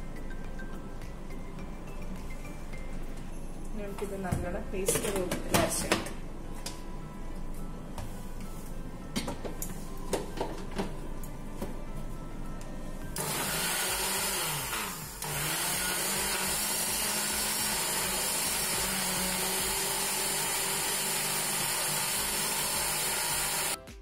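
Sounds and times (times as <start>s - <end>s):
blender whirring: 13.2s - 23.8s.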